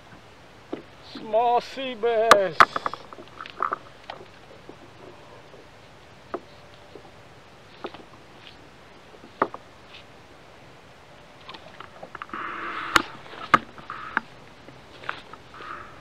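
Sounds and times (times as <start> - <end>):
knocks and clicks on kayak: 11.5 - 14.3.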